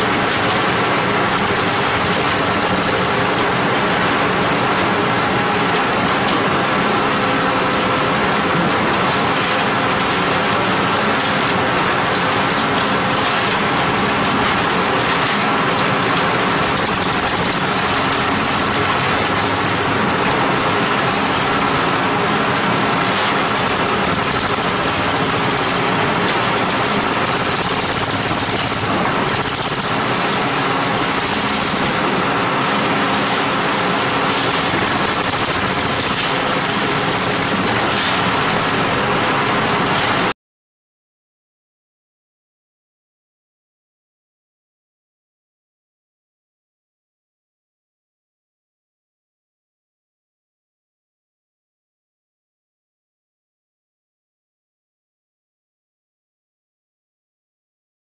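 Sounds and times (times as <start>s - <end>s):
concrete mixer pump running: 0.0s - 40.4s.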